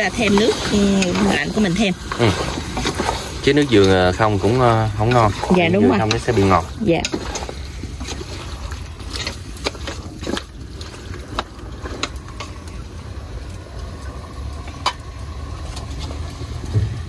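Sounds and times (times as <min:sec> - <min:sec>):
utensil scraping and knocking pot: 0:00.0 - 0:12.9.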